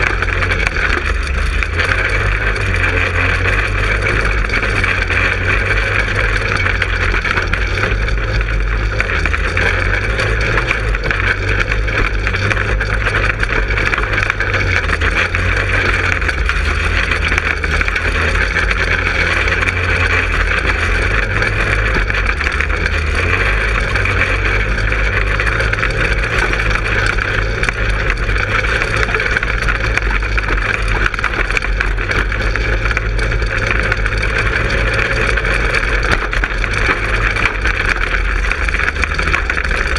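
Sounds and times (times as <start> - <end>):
go-kart engine running: 0.0 - 39.9.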